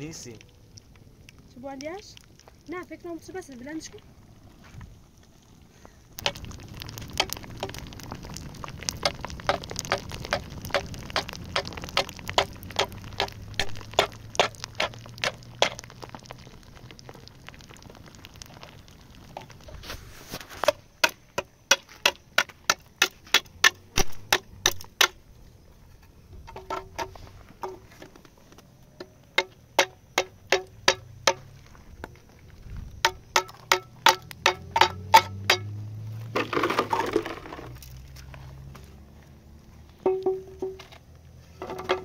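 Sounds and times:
wood fire crackling and popping: 0.0 - 42.0
sharp knocks of can on rock: 20.4 - 25.2, 29.0 - 31.5, 33.0 - 38.0, 40.0 - 41.0, 41.6 - 42.0.

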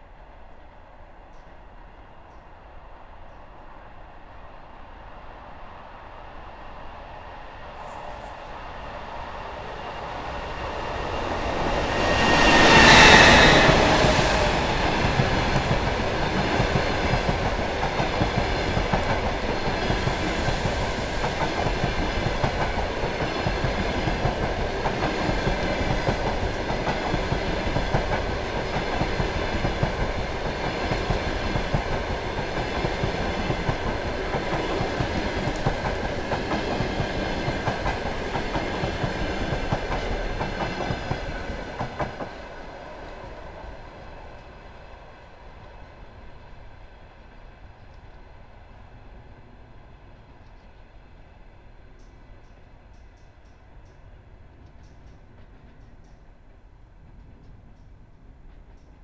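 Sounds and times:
electric locomotive passing: 0.0 - 59.0
train wheels clacking on rails: 8.1 - 43.4, 52.0 - 59.0.

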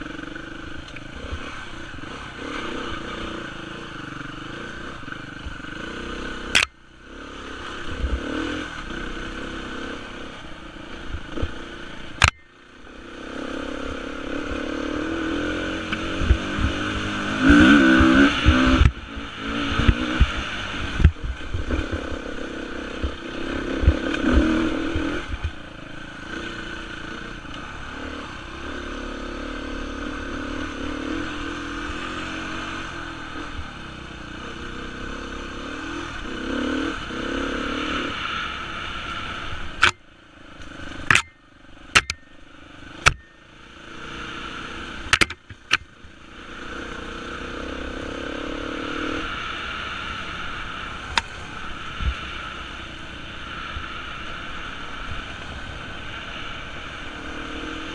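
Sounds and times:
motorcycle engine revving: 0.0 - 57.9
sharp clicks: 6.6 - 6.8, 40.6 - 41.4, 42.0 - 42.2, 45.1 - 45.9.

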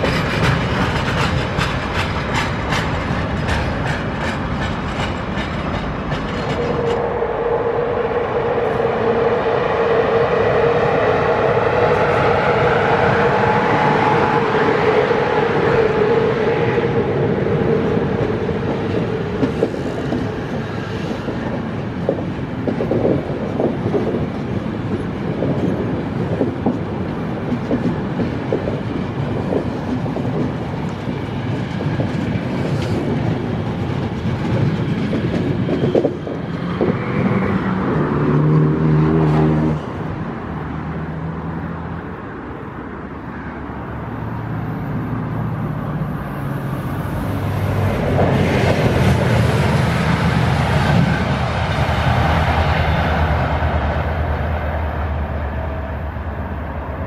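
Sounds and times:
train wheels clattering over rail joints: 0.0 - 7.1, 17.8 - 37.5
approaching train hum: 0.0 - 57.0.

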